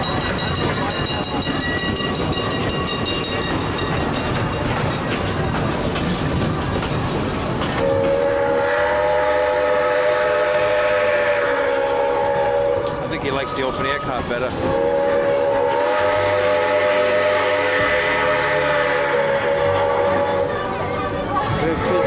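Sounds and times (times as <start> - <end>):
train rumbling and rattling: 0.0 - 22.0
train whistle chord: 7.8 - 13.0, 14.7 - 20.7.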